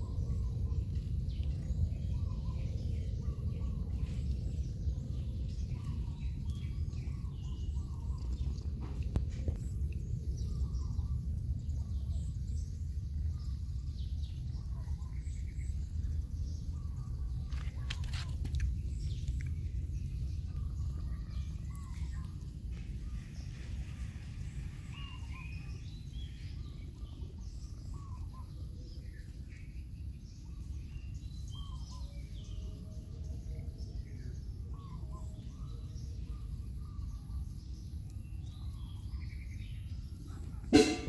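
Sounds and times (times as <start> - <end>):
low rumble: 0.0 - 29.1.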